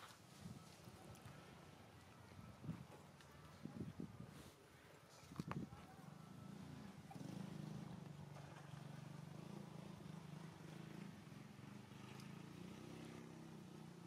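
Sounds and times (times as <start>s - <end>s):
faint motor engine hum: 0.0s - 14.0s.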